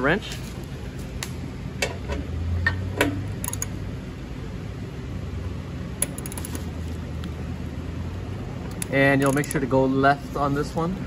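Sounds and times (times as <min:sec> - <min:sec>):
steady low hum: 0:00.0 - 0:11.0
metallic wrench clicks: 0:03.4 - 0:03.8, 0:06.0 - 0:06.7, 0:08.7 - 0:09.7.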